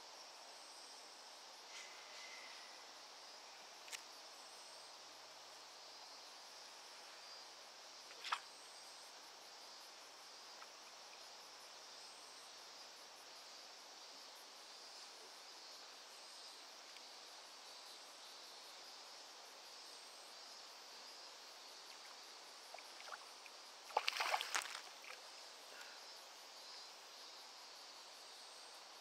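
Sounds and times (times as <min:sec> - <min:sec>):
insect chorus: 0:00.0 - 0:29.0
fish splashing at water surface: 0:23.9 - 0:25.2.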